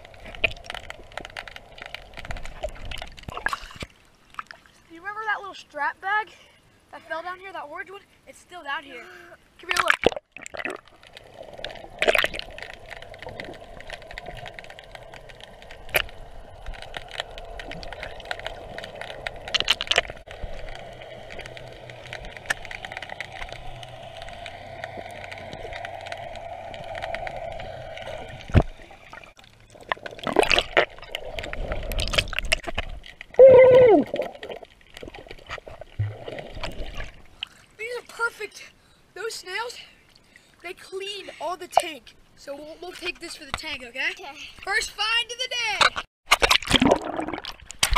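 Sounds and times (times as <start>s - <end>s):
sharp underwater clicks: 0.0s - 4.6s, 9.6s - 37.6s, 45.7s - 47.9s
water sloshing and bumps: 0.0s - 5.6s, 9.6s - 33.4s, 34.0s - 38.4s
muffled underwater hum: 10.9s - 29.8s.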